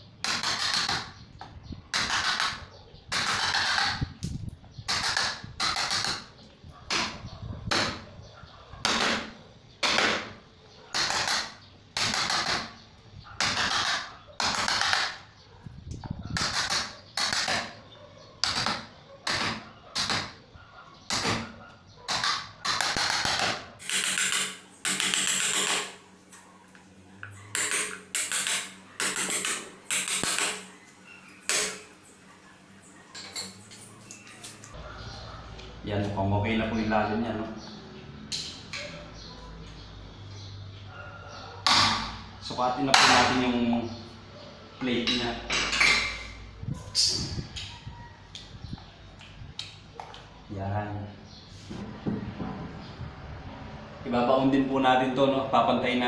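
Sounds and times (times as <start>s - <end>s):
hammer striking a chisel: 22.1s - 26.0s, 27.5s - 30.7s, 31.5s - 31.9s.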